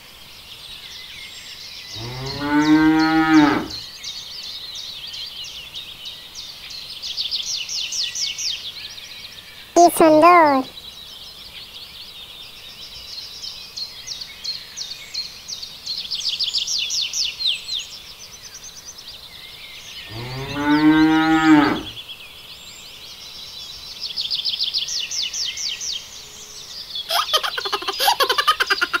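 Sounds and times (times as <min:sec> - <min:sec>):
cow mooing: 0:02.0 - 0:03.8, 0:20.1 - 0:22.0
rapid high chirping trills: 0:27.1 - 0:29.0.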